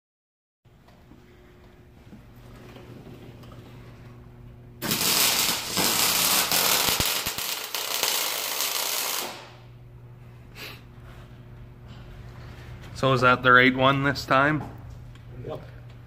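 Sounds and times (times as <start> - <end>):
low steady hum: 0.7 - 16.0
welding arc crackling: 4.8 - 9.7.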